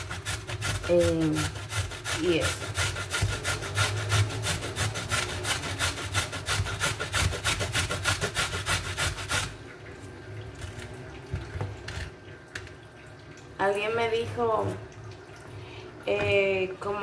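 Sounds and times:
carrot grated on metal grater: 0.0 - 9.5.

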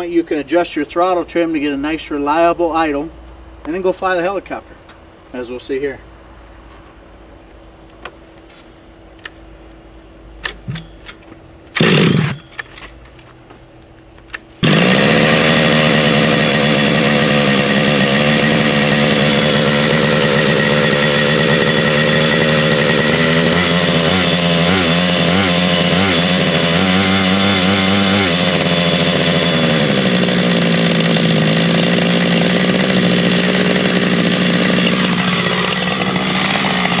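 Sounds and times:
starter cord rasp: 11.8 - 12.7, 14.6 - 37.0
model helicopter engine running: 14.6 - 37.0.

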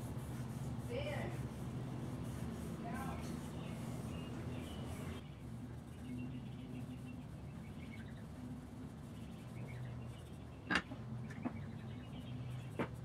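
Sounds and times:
cloth rag rubbing wood: 0.0 - 5.2
steady low hum: 0.0 - 13.0.

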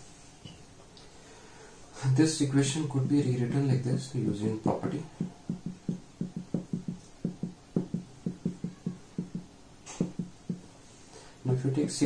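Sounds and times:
marker writing on whiteboard: 5.0 - 10.8.

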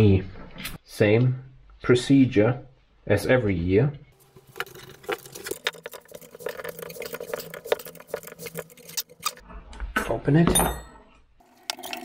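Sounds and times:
metallic clicks and scrapes: 4.4 - 9.5.

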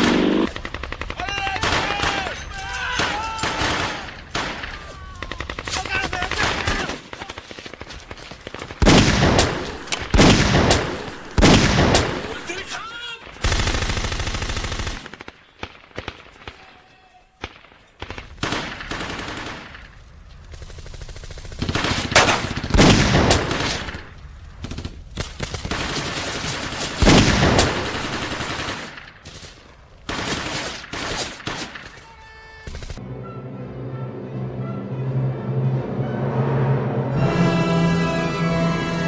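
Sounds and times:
rifle shots: 0.0 - 2.4, 3.0 - 12.7, 17.4 - 20.0, 20.6 - 32.0.

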